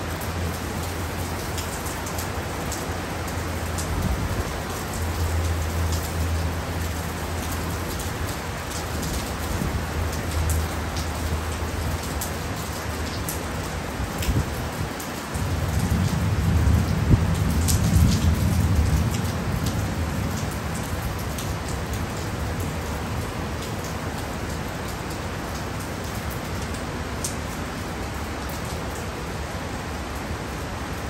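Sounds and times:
heavy rain falling: 0.0 - 31.0
raindrops ticking on surface: 0.0 - 31.0
thunder rumble: 15.4 - 21.8.

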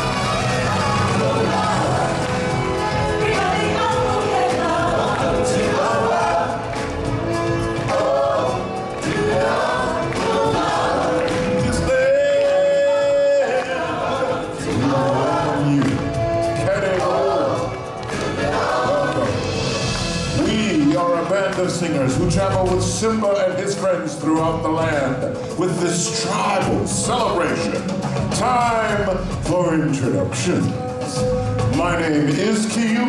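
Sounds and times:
choir singing: 0.0 - 20.1
instrumental backing: 0.0 - 33.0.

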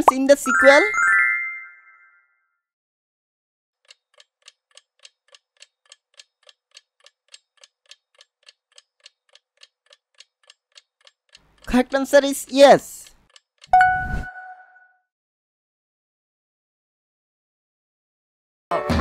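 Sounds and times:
chime ringing: 0.5 - 2.4, 13.7 - 14.8
clock ticking: 3.8 - 13.9.

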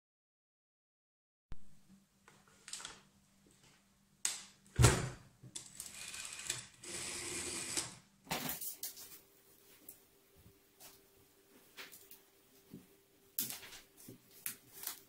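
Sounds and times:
dial spinning back whir: 5.8 - 8.0.

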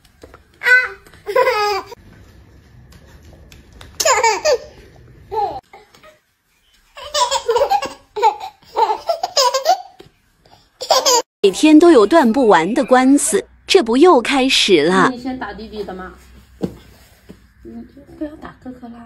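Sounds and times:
toddler laughing: 1.2 - 2.0, 4.0 - 5.6, 7.0 - 10.0, 10.8 - 11.2.

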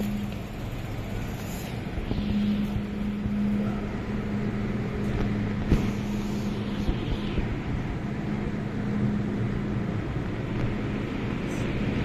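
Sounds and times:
metro train humming: 0.0 - 12.0
station noise: 0.0 - 12.0.

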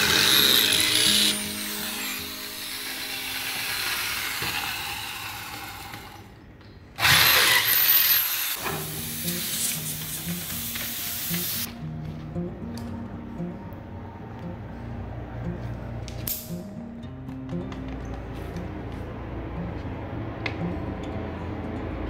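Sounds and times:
electric drill boring through metal: 0.0 - 6.3, 7.0 - 9.4.

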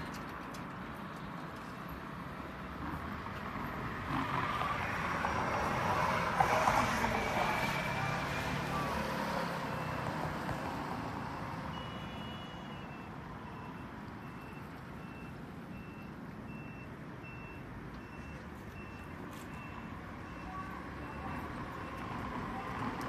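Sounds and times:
reversing alarm beeping: 7.6 - 10.4, 11.6 - 22.9.

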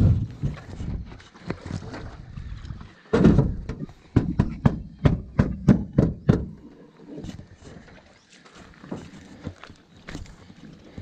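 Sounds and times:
sharp knocks on boat panel: 3.2 - 6.6.

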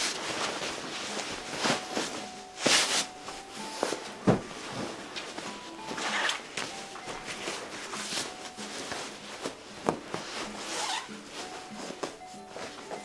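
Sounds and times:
fabric cover rustling: 0.0 - 13.0
mattress thump on carpet: 4.2 - 4.7.

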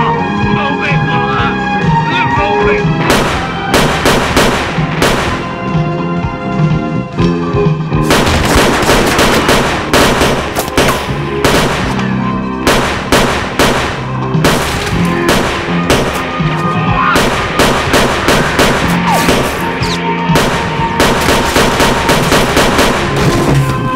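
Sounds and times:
film score with low notes: 0.0 - 23.9
handgun gunfire: 3.1 - 5.6, 8.0 - 16.6, 17.2 - 23.4.

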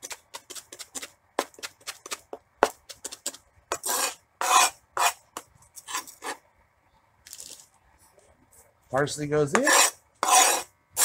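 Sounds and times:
scraping herbs on a plastic board: 0.0 - 6.4, 9.5 - 11.0.

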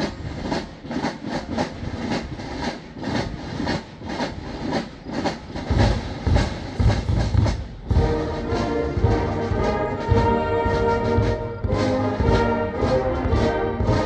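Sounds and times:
marching band drums: 0.0 - 14.0
snare drum strokes: 0.0 - 14.0
heavy bass drum: 5.4 - 10.2.

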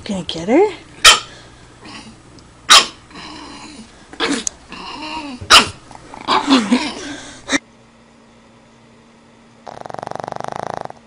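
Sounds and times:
puppy barking and yipping: 1.0 - 1.3, 2.7 - 3.0.

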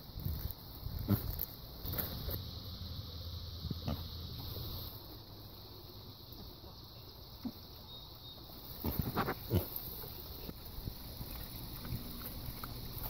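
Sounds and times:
pigs chewing and crunching: 7.4 - 13.0
pigs grunting: 8.8 - 10.0.

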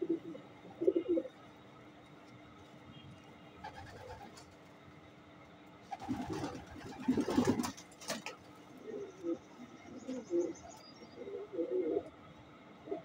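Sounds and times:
pigeons cooing: 0.0 - 1.4, 6.0 - 7.8, 8.8 - 12.1.

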